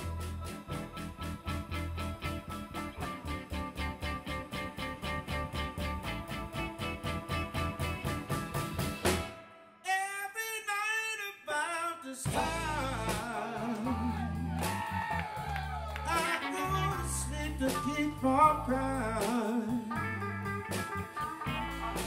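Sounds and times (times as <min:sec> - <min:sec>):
bending lead guitar line: 0:00.0 - 0:09.6, 0:12.3 - 0:22.0
blues band playing: 0:00.0 - 0:09.6, 0:12.3 - 0:22.0.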